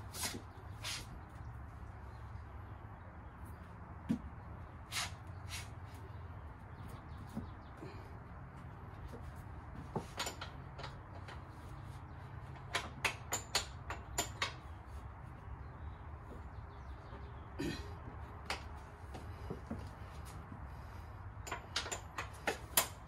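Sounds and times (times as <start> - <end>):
wrench clicking on metal bolts: 12.5 - 14.7, 21.4 - 23.0.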